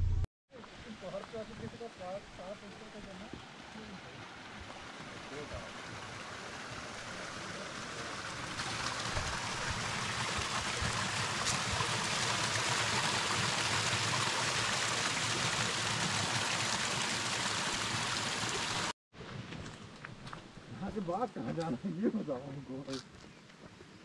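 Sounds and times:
stream water rushing: 0:01.1 - 0:18.9.

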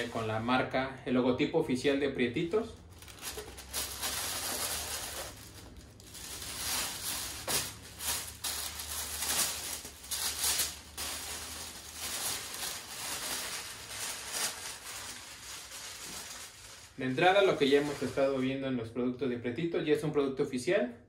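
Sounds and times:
plastic wrap rustling and crinkling: 0:00.0 - 0:00.6, 0:02.4 - 0:18.6.

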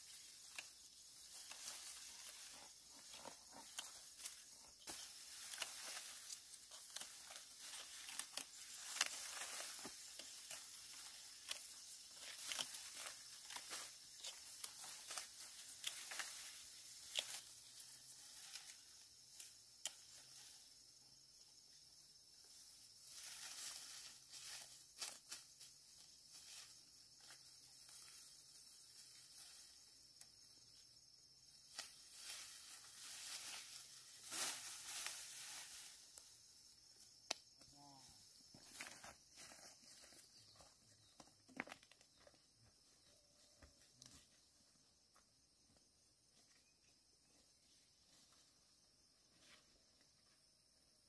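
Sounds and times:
rice stalks rustling: 0:00.0 - 0:20.6, 0:22.9 - 0:30.0, 0:31.6 - 0:36.5.

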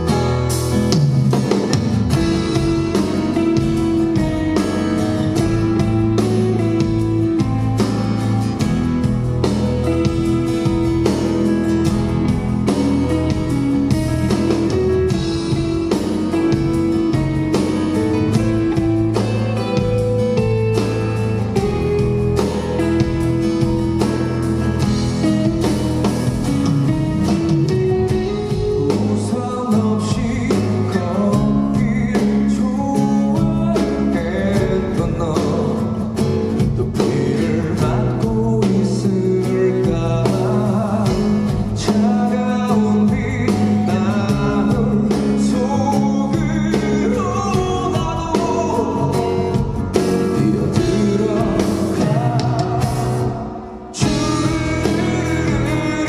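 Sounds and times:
strummed acoustic guitar: 0:00.0 - 0:56.0
man singing: 0:01.5 - 0:08.6, 0:26.8 - 0:56.0.

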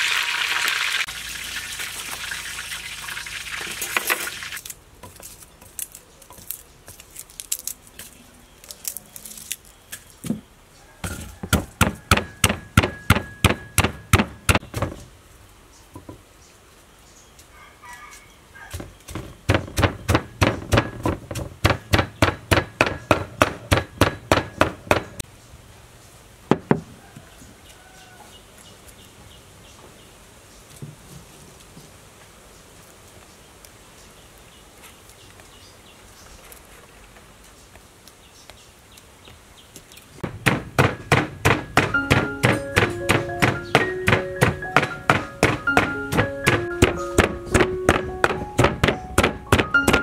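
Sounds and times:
wooden pestle pounding in mortar: 0:11.1 - 0:14.9, 0:18.7 - 0:25.2, 0:40.2 - 0:50.0
separate knocks: 0:11.1 - 0:15.0, 0:18.8 - 0:25.2, 0:40.2 - 0:50.0.

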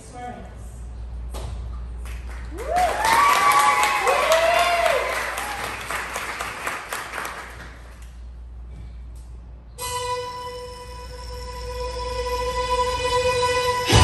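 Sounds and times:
small audience clapping: 0:02.0 - 0:08.2
whoops: 0:02.5 - 0:05.8.

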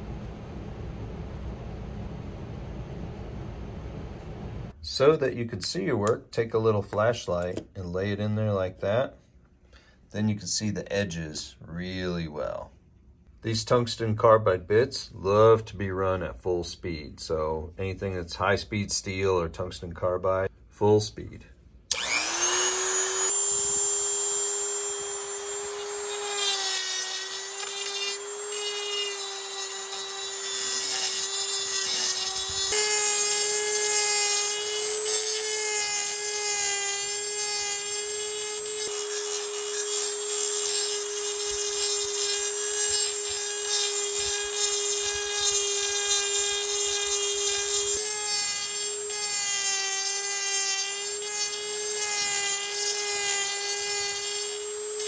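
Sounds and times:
rotary tool grinding metal: 0:21.9 - 0:55.0.

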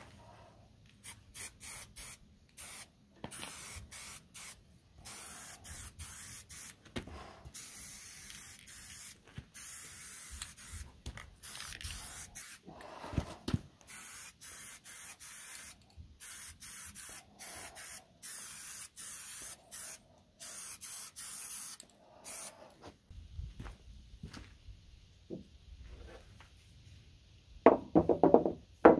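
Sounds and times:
spray paint can hissing: 0:01.0 - 0:12.8, 0:13.8 - 0:22.6.

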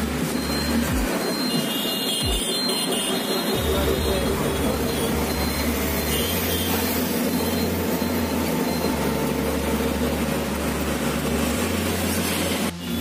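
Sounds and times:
vehicle engine and road noise: 0:00.0 - 0:13.0
low drone: 0:03.6 - 0:13.0.

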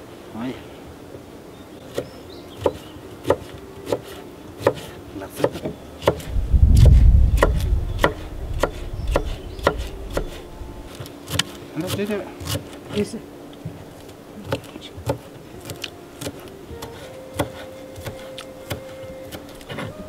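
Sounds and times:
loud low rumble: 0:06.3 - 0:10.9.

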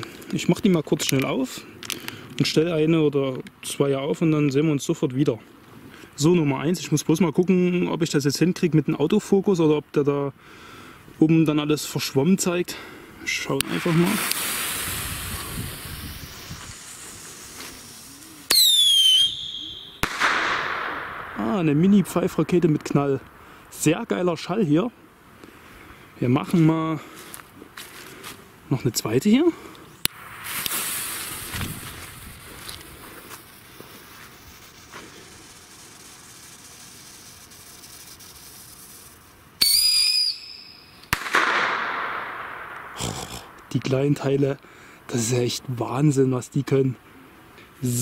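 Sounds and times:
fuse hissing: 0:13.2 - 0:24.0, 0:30.0 - 0:41.1
rocket whistle falling in pitch: 0:18.4 - 0:21.4, 0:39.6 - 0:42.9
sharp echoing bang: 0:19.0 - 0:23.0, 0:41.1 - 0:43.6.

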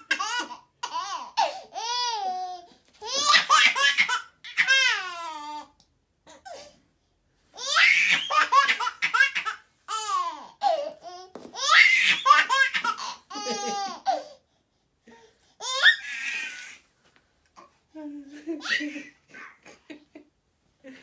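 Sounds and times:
baby laughing: 0:00.0 - 0:02.4, 0:03.0 - 0:05.5, 0:07.6 - 0:14.4, 0:18.3 - 0:20.0.

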